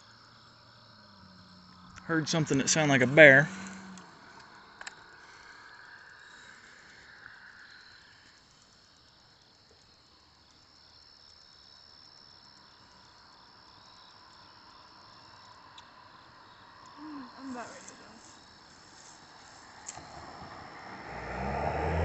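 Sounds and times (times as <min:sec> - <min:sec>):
crickets trilling: 0:00.0 - 0:22.0
short insect chirps: 0:03.5 - 0:21.0.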